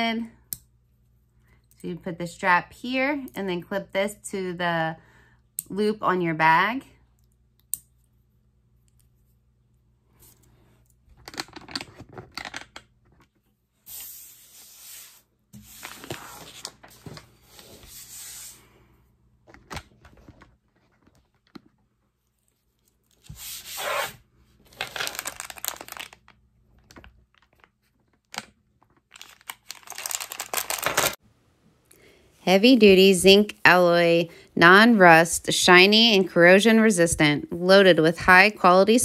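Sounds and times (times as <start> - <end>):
plastic bag crinkling: 24.7 - 31.2.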